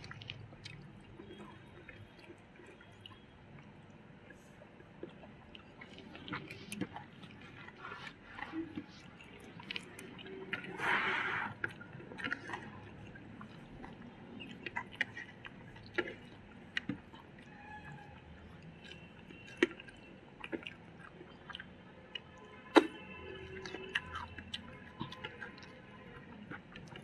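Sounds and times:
chewing: 0.0 - 27.0
wet mouth clicks: 22.8 - 23.0.

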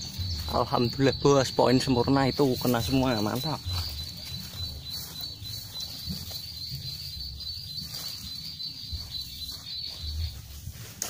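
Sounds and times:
insect trilling: 0.0 - 10.8.

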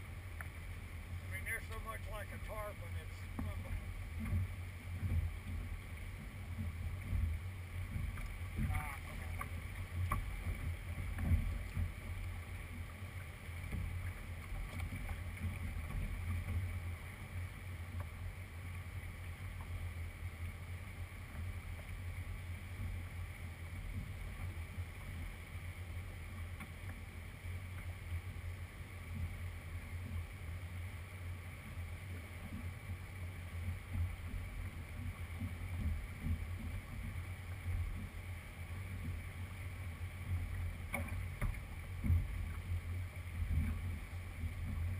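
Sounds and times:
wind rumble on microphone: 0.0 - 30.6, 31.6 - 44.9.

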